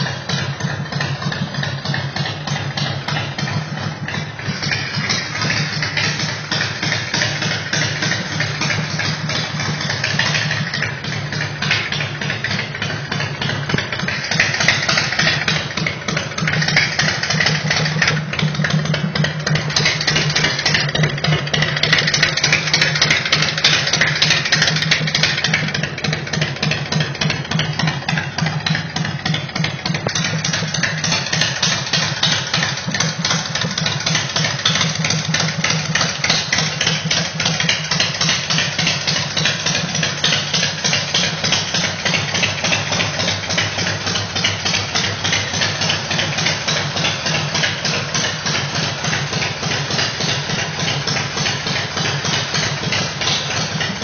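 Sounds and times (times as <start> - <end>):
motorcycle engine idling: 0.0 - 54.0.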